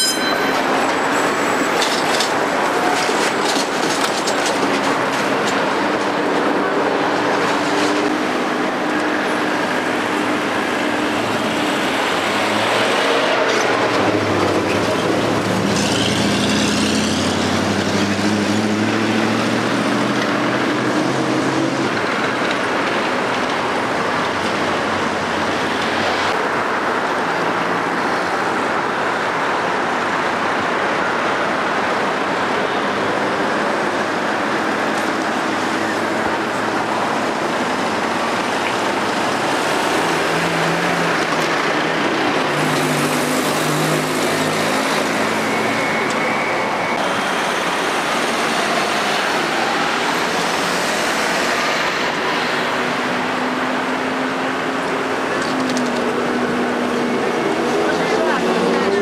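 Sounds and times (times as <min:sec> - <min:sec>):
city traffic: 0:00.0 - 0:59.0
trolleybus passing: 0:00.0 - 0:59.0.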